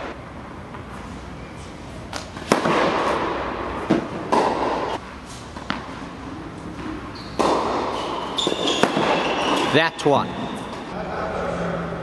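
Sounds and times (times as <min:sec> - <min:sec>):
tennis racket striking ball: 0:02.1 - 0:05.0, 0:06.8 - 0:09.7.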